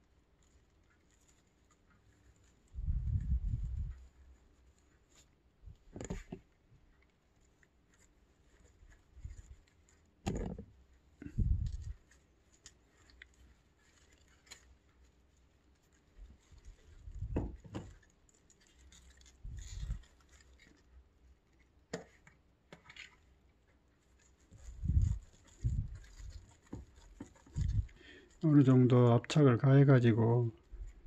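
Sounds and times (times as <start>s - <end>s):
soft rustling of moss: 0.0s - 31.0s
dull thumps of pot: 5.9s - 6.4s, 10.2s - 10.7s, 17.2s - 17.9s.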